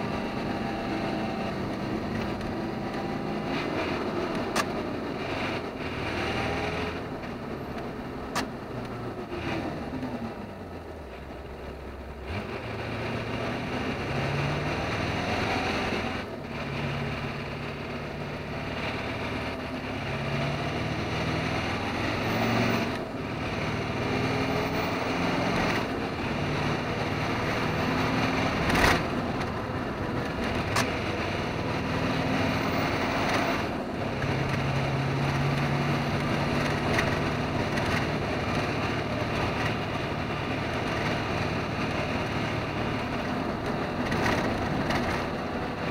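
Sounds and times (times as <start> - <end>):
truck engine running: 0.0 - 45.9
tyre and road noise: 0.0 - 45.9.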